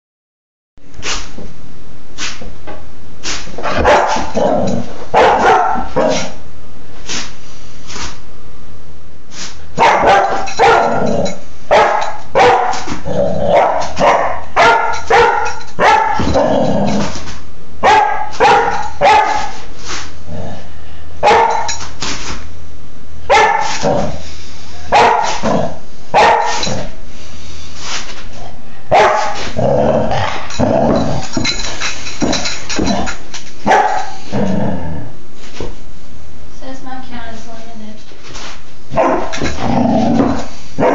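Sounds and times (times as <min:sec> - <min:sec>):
puppy barking: 0:03.8 - 0:04.4, 0:05.1 - 0:06.3, 0:09.8 - 0:11.1, 0:11.7 - 0:12.9, 0:13.5 - 0:16.4, 0:17.8 - 0:19.6, 0:21.2 - 0:21.8, 0:23.3 - 0:23.8, 0:24.9 - 0:25.4, 0:26.2 - 0:26.7, 0:28.9 - 0:29.4, 0:33.7 - 0:34.2, 0:38.9 - 0:39.4.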